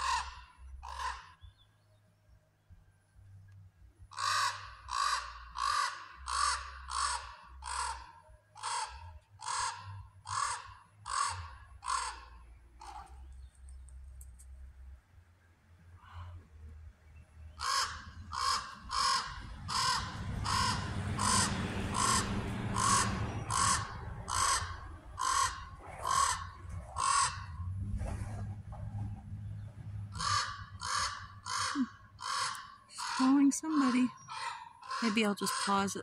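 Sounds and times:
raven cawing: 0:00.0 - 0:01.4, 0:04.1 - 0:13.3, 0:17.5 - 0:27.7, 0:30.1 - 0:36.0.

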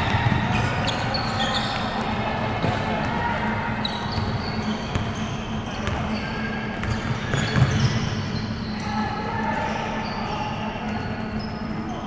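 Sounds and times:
ball bouncing on court floor: 0:00.0 - 0:00.8, 0:01.6 - 0:03.2, 0:03.8 - 0:05.2, 0:05.8 - 0:06.1, 0:06.8 - 0:08.1.

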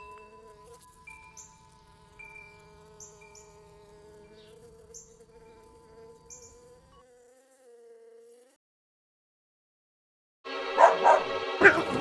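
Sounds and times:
faint wind chimes: 0:00.0 - 0:06.0
bumblebee buzzing: 0:00.0 - 0:08.6.

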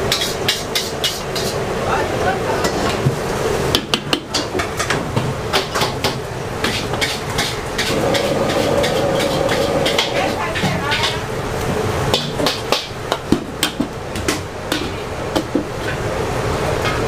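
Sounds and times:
steady hum: 0:07.5 - 0:16.9.

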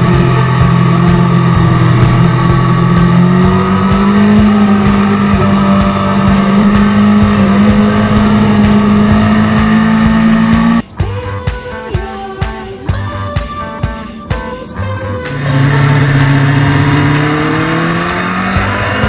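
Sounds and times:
motorcycle engine at high revs: 0:00.0 - 0:10.8, 0:15.2 - 0:19.0
music: 0:00.0 - 0:19.0.

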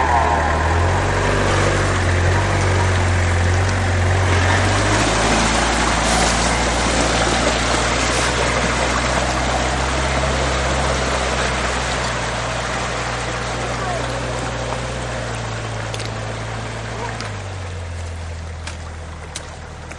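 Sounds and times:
off-road vehicle engine running: 0:00.0 - 0:19.9
tyres churning water and mud: 0:00.0 - 0:19.9.

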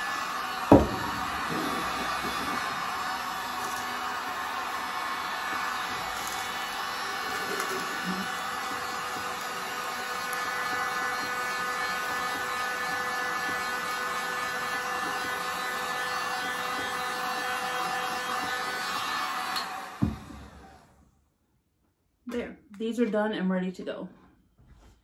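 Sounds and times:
heat gun fan whine: 0:00.0 - 0:21.0
thump: 0:00.7 - 0:02.6, 0:20.0 - 0:20.4.

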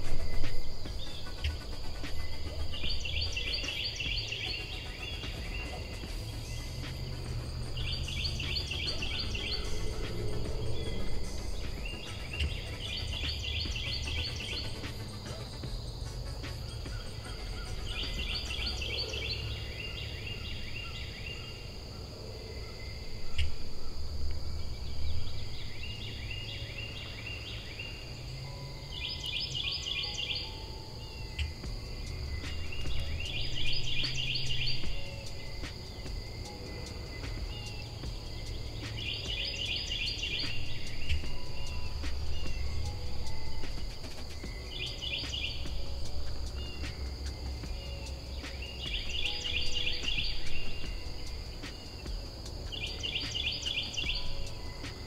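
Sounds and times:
high insect buzz: 0:00.0 - 0:21.3, 0:23.1 - 0:55.0
songbird trilling: 0:00.0 - 0:21.7, 0:24.6 - 0:55.0
low rumble: 0:05.5 - 0:19.7.

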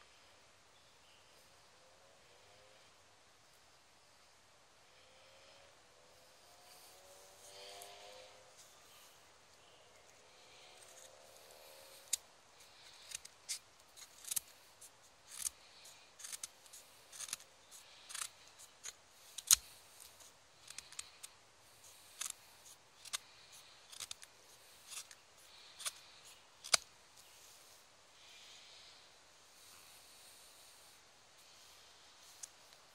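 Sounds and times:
knife shaving wood: 0:10.7 - 0:26.8.

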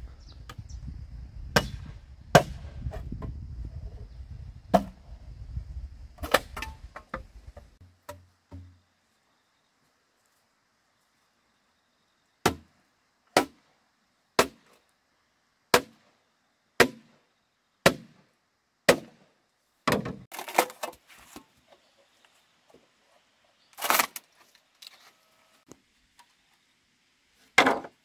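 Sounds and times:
chopping blows on bamboo: 0:01.5 - 0:03.4, 0:04.7 - 0:05.0, 0:12.4 - 0:12.7, 0:13.3 - 0:13.6, 0:14.4 - 0:14.8, 0:15.7 - 0:16.0, 0:16.8 - 0:17.1, 0:17.8 - 0:18.2, 0:18.9 - 0:19.2.

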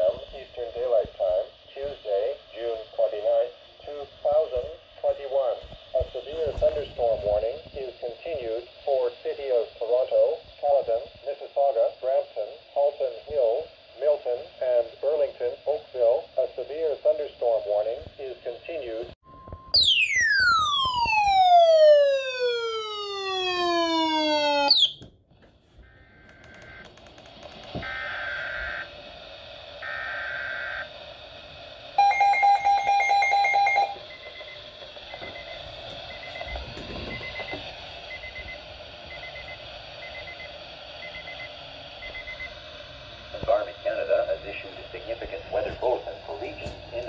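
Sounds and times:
falling electronic alarm tone: 0:19.3 - 0:25.0, 0:27.8 - 0:28.9, 0:32.0 - 0:34.5
electronic beeping: 0:32.0 - 0:42.6.

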